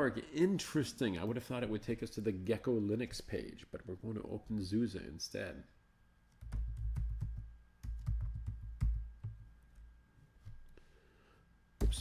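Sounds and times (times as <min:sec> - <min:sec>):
typing on computer keyboard: 0:06.3 - 0:09.4.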